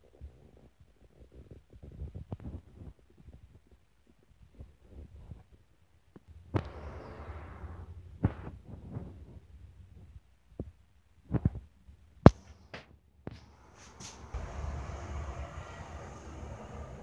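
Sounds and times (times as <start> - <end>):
low rumble: 6.3 - 9.4, 14.2 - 17.0.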